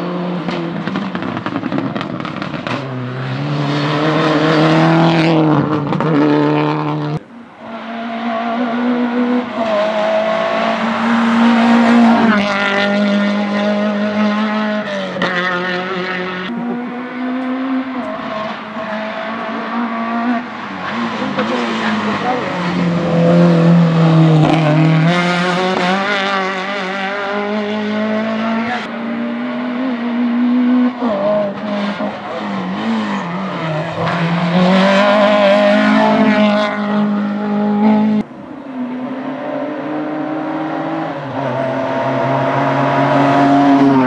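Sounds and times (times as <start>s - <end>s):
race car engines at full throttle: 0.0s - 44.0s.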